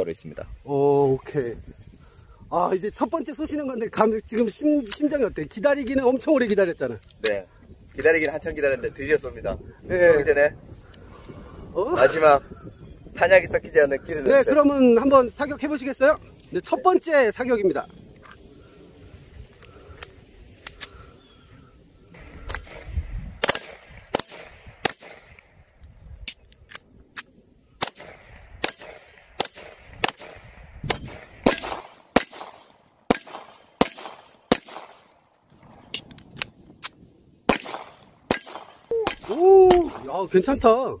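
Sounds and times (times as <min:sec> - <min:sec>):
pistol shots with echo: 0:22.4 - 0:25.4, 0:27.8 - 0:35.1, 0:37.5 - 0:40.0.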